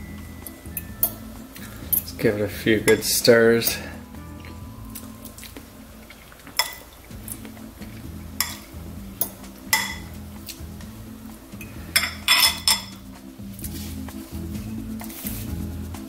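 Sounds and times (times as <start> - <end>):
fork clinking against glass bowl: 2.9 - 5.5, 6.1 - 6.9, 8.4 - 10.1, 12.0 - 13.0.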